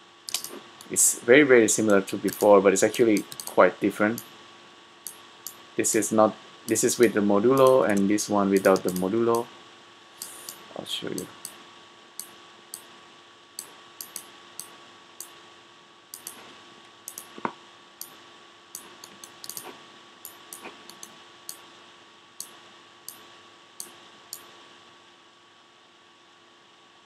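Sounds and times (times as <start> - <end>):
faint steady hum: 0.0 - 27.0
computer mouse clicking: 0.3 - 0.9, 2.3 - 4.3, 6.7 - 9.4, 13.6 - 15.3, 16.1 - 16.5, 17.1 - 18.2, 18.8 - 21.6.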